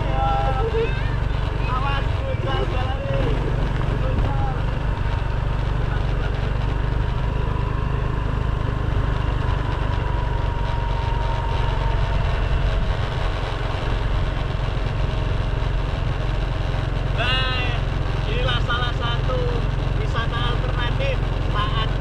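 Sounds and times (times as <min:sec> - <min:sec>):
ride rumble on rough road: 0:00.0 - 0:22.0
wind noise on camera: 0:08.8 - 0:16.6.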